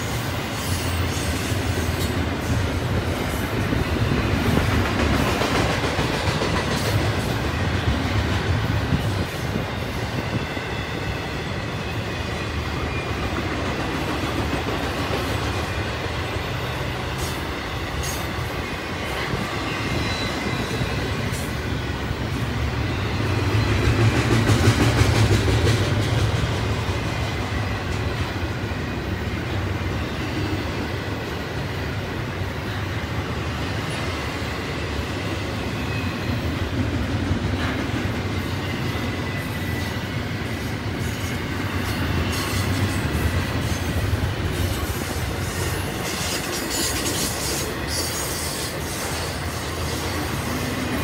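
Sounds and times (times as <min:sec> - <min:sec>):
steel wheels rumbling on rail: 0:00.0 - 0:51.0
high wheel squeal: 0:19.3 - 0:21.5, 0:41.0 - 0:50.7.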